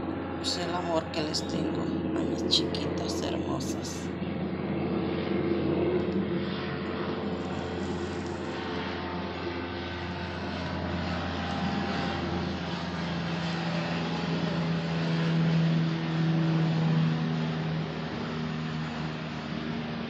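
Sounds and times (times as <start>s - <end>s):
engine drone with low hum: 0.0s - 20.0s.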